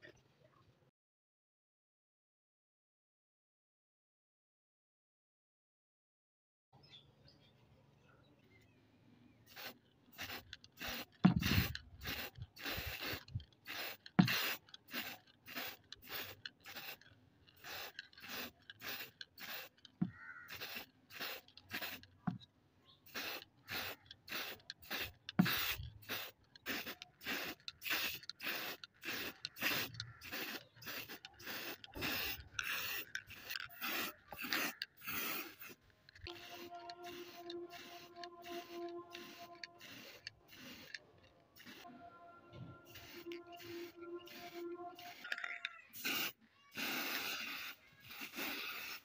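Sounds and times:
spray paint can hissing: 9.4 - 22.4, 23.0 - 49.0.

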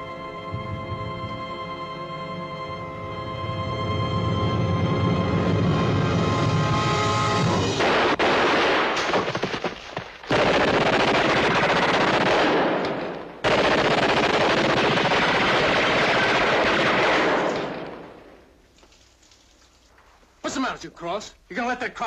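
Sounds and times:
machine-gun fire: 7.4 - 18.2.

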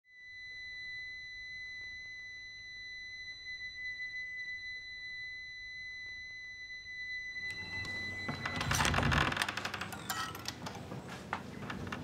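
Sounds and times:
high-pitched ringing tone: 0.1 - 8.9.

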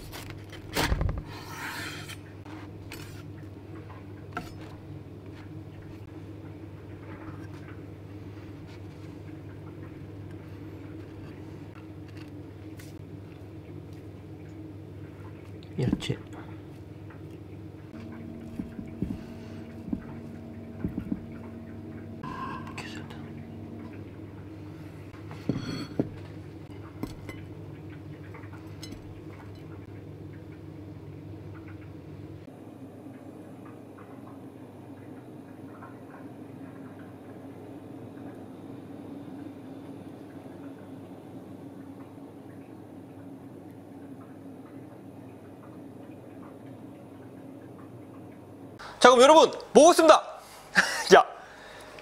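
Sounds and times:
low machine hum: 0.0 - 52.0
plates knocking and clinking: 22.2 - 22.8, 25.3 - 26.4.

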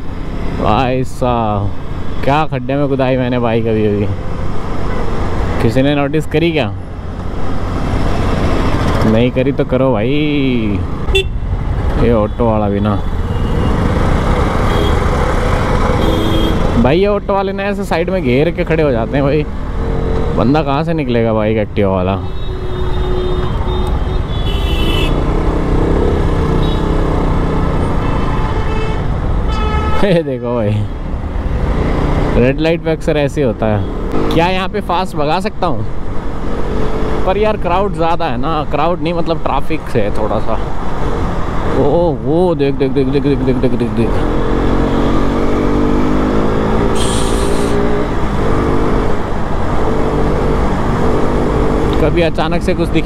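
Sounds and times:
motorcycle engine accelerating: 44.2 - 52.9.

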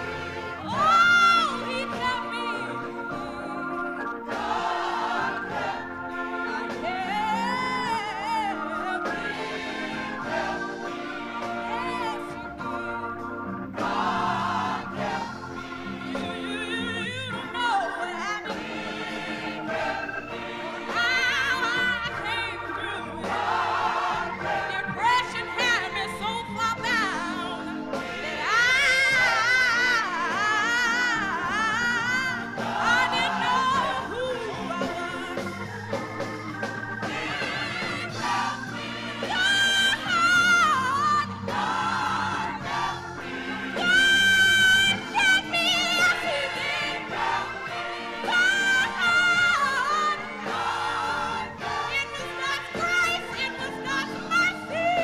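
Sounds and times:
gospel choir singing: 0.0 - 55.0.

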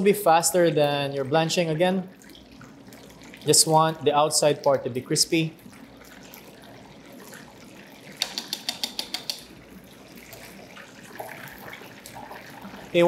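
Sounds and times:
sharp clicks: 8.2 - 9.5.

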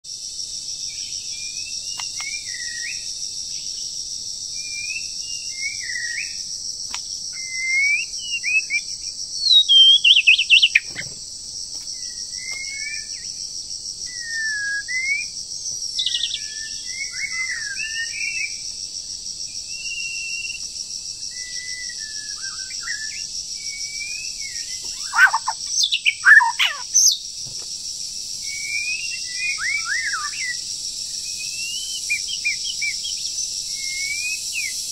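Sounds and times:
high insect drone: 0.1 - 34.9
bird singing whistled phrases: 7.4 - 11.0, 14.1 - 15.3, 16.0 - 18.6, 21.4 - 27.2, 28.5 - 30.6, 31.4 - 34.9
bird sweeping calls: 24.8 - 27.2.

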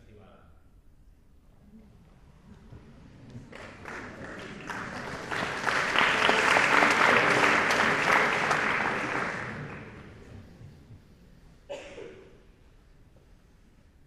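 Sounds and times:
audience applauding: 2.6 - 10.6.

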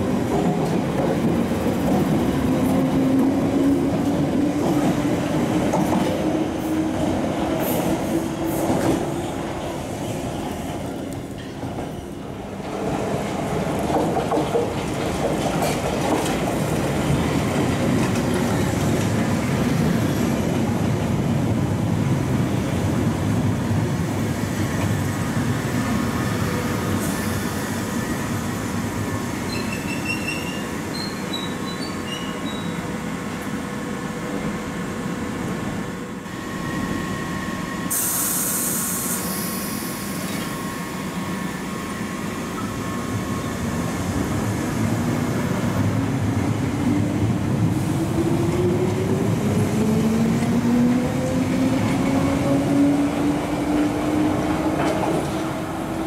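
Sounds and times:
train wheels rumbling on rails: 0.0 - 56.0
air hiss: 37.9 - 40.5.

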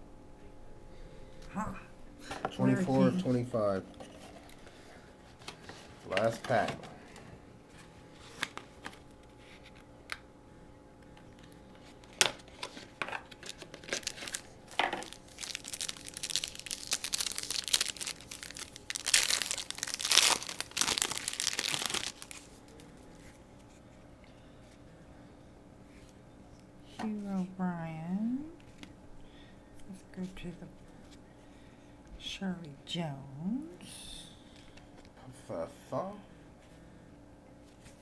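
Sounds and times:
foil wrapper tearing and crinkling: 12.1 - 22.8.

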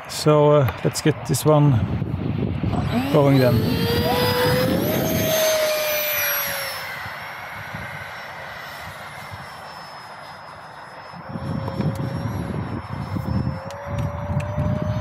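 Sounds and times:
electric ducted fan whining: 1.6 - 15.0.

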